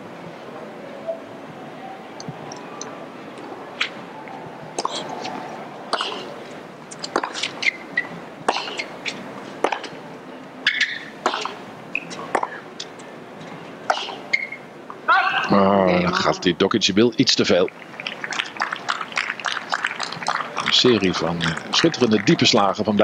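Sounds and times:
crowd murmur: 0.0 - 16.6, 17.7 - 23.0
racket hitting tennis ball: 4.8 - 10.0
ball bouncing: 6.9 - 10.0.

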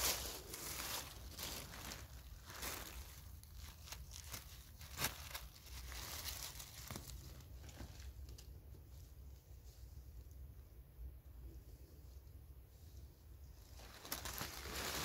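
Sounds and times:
dry leaves rustling: 0.0 - 8.0, 13.8 - 15.0.

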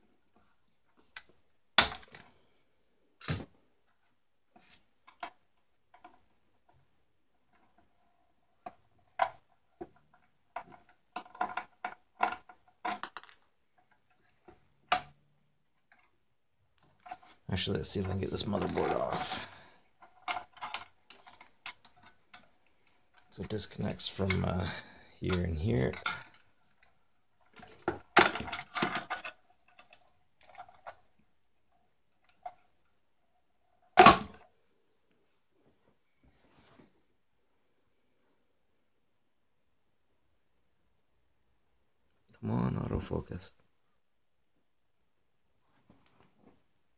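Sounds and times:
plastic clicks and knocks: 8.6 - 15.2.

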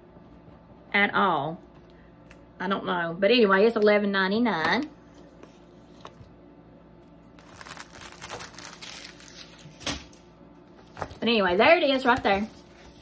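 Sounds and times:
paper and plastic crinkling: 7.3 - 13.0.

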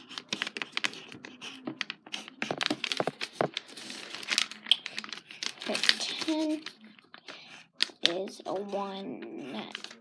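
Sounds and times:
crinkling and crackling: 0.1 - 10.0.

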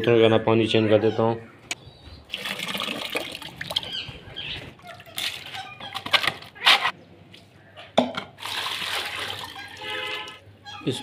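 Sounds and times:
water poured into plastic bowl: 2.3 - 3.8, 8.4 - 9.9.

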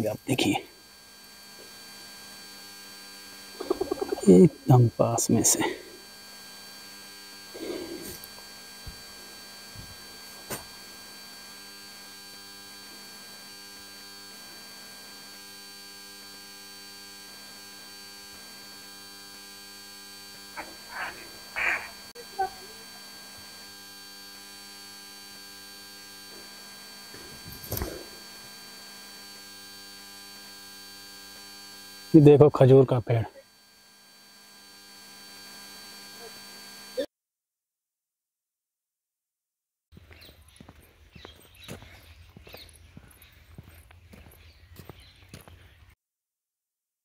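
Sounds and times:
steady electrical hum: 0.0 - 37.1.

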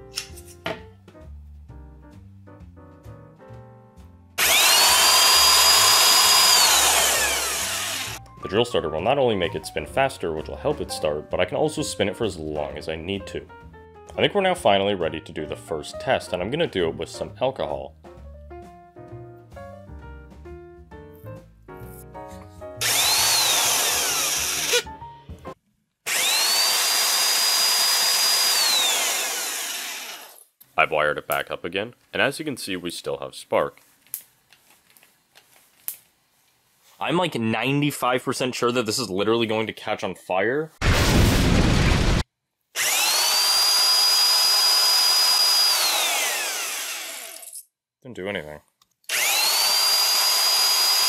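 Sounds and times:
electric drill motor whine: 4.4 - 8.2, 22.8 - 24.8, 26.1 - 30.4, 42.8 - 47.5, 49.1 - 51.0.

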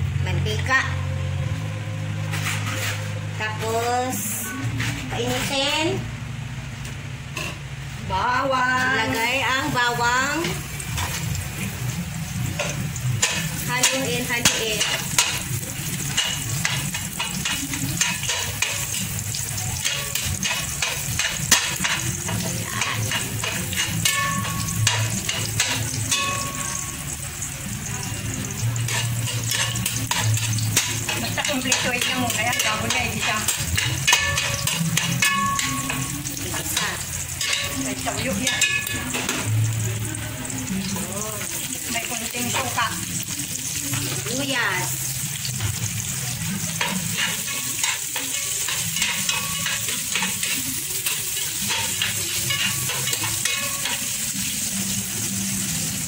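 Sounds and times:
metal spatula scraping pot: 2.2 - 5.7, 12.6 - 27.2, 28.4 - 39.5, 45.6 - 54.9
garlic sizzling in hot oil: 8.2 - 56.0.

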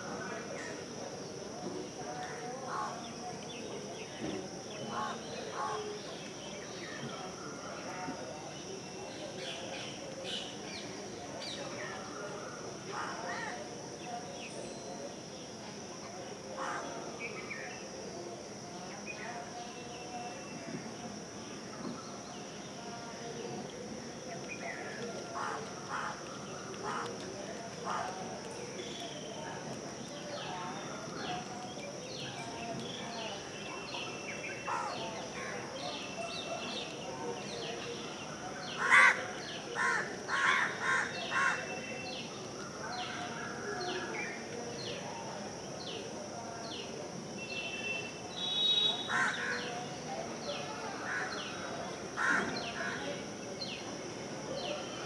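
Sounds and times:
crow cawing: 38.8 - 39.2, 52.2 - 52.4.

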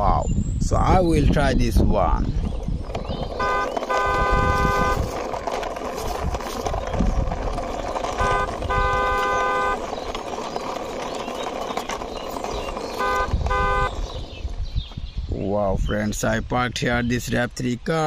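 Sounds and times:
toy car wheels rolling on concrete: 1.2 - 15.2
car horn toots: 3.4 - 5.2, 8.1 - 9.9, 13.0 - 14.0.

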